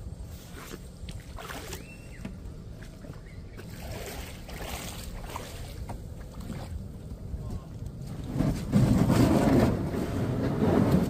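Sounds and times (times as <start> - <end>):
steady low rumble: 0.0 - 11.0
water sloshing around a kayak: 0.2 - 8.9.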